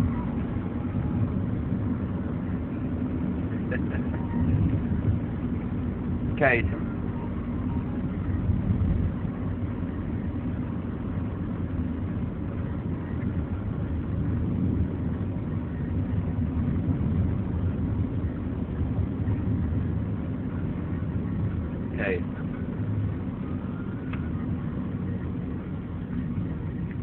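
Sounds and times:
car road and engine noise: 0.0s - 27.0s.

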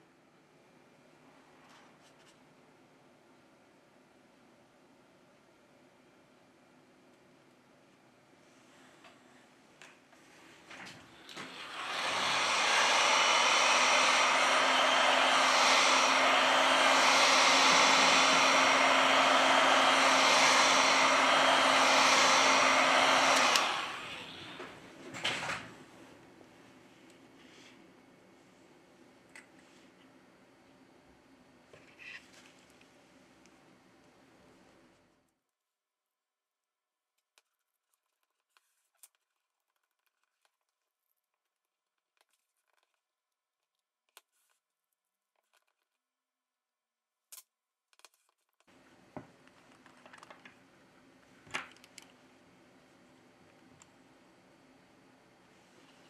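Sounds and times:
hot air gun blowing: 11.2s - 24.8s.

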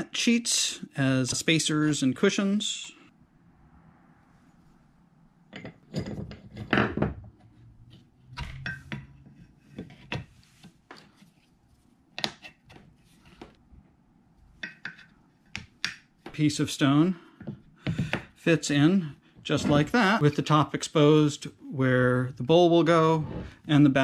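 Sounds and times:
metal parts clinking and knocking: 5.5s - 7.2s.

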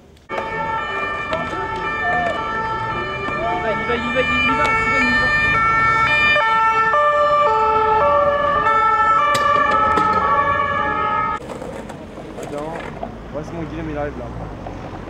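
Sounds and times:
two-tone police sirens: 0.3s - 11.4s.

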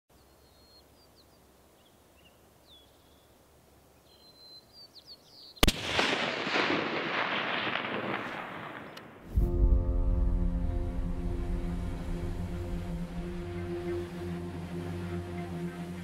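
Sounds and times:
small birds chirping: 0.1s - 5.7s
rifle shot with echo: 5.6s - 9.3s.

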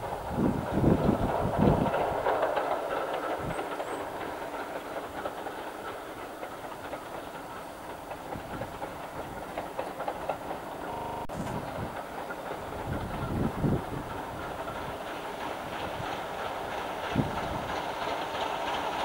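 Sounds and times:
train wheels clicking over rail joints: 0.0s - 19.0s
short buzz: 10.9s - 11.5s.

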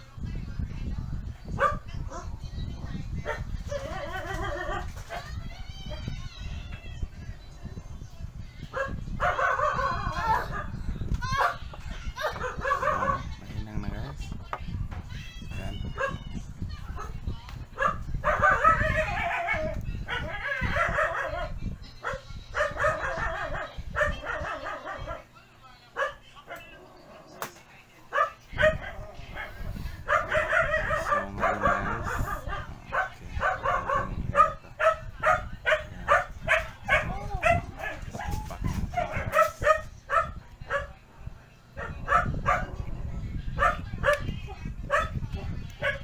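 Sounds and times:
dog barking: 1.5s - 2.3s, 8.7s - 10.8s, 11.4s - 13.4s, 16.0s - 16.2s, 17.8s - 25.3s, 26.0s - 26.8s, 28.1s - 41.0s, 41.8s - 42.8s, 43.6s - 44.3s, 44.9s - 45.2s, 45.8s - 46.0s
dog crying: 28.6s - 39.8s.

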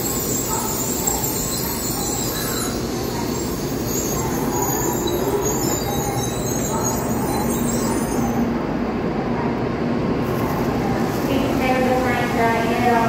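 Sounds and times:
train wheels running on rails: 0.0s - 13.0s.

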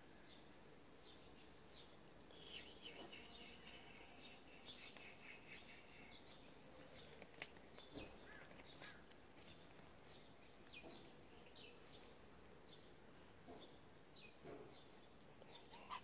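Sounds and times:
small birds chirping: 0.1s - 16.0s.

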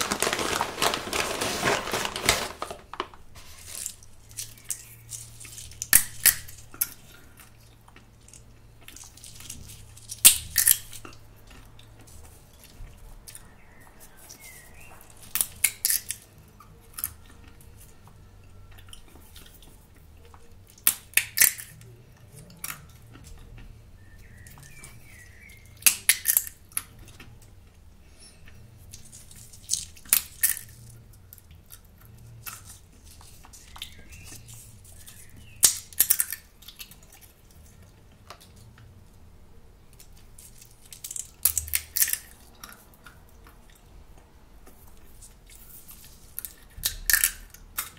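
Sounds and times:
sunflower seeds cracking: 0.0s - 13.4s, 14.0s - 16.3s, 20.4s - 23.6s, 24.4s - 27.3s, 28.9s - 37.1s, 40.0s - 43.8s.

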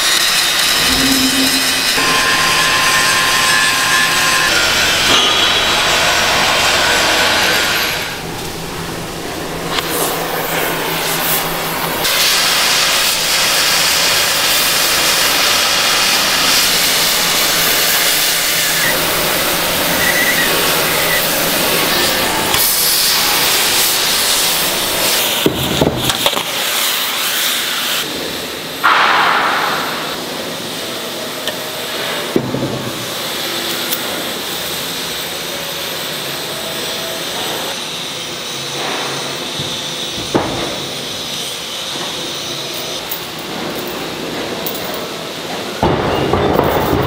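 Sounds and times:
sudden loud noise: 0.7s - 3.3s, 28.8s - 30.6s
welding hiss and crackle: 4.4s - 47.0s.

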